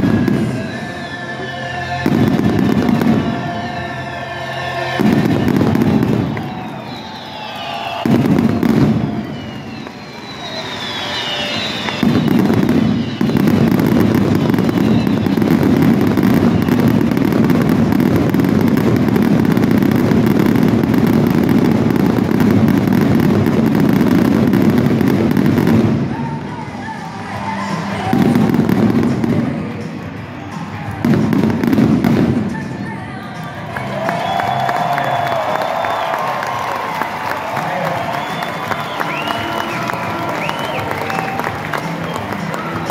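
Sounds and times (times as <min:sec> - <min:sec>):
fireworks reports and crackle: 0:00.0 - 0:42.9
falling firework whistles: 0:02.0 - 0:26.1, 0:34.2 - 0:42.7.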